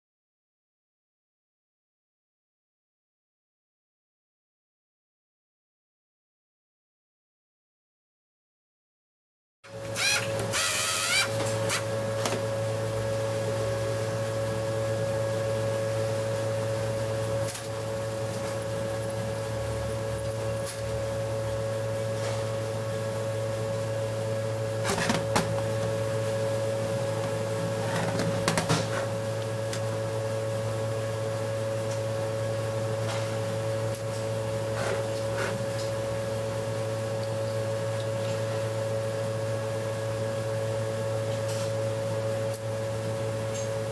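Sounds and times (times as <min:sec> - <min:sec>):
machine hum: 0:09.7 - 0:43.9.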